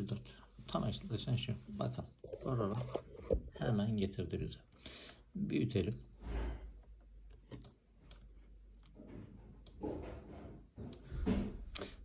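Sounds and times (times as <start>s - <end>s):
computer mouse clicks: 7.3s - 8.3s.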